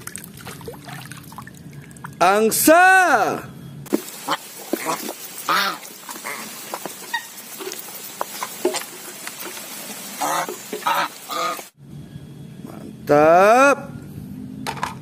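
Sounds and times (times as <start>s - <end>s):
geese honking: 4.2s - 7.8s, 10.0s - 11.7s.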